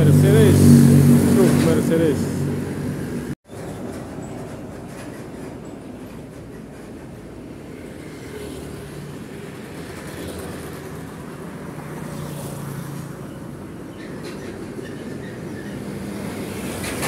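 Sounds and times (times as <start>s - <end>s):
small motorcycles passing: 0.0s - 3.3s, 7.7s - 13.2s
cars and trucks engine hum: 0.0s - 17.0s.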